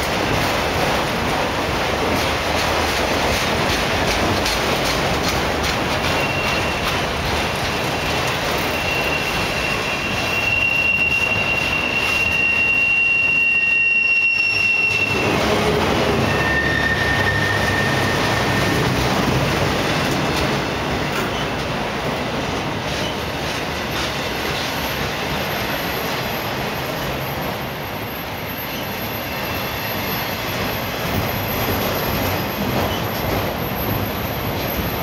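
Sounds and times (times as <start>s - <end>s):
freight cars rumbling on rails: 0.0s - 35.0s
lower wheel squeal: 6.0s - 7.1s, 8.0s - 19.4s, 24.6s - 35.0s
high-pitched wheel squeal: 6.1s - 7.0s, 8.2s - 19.4s.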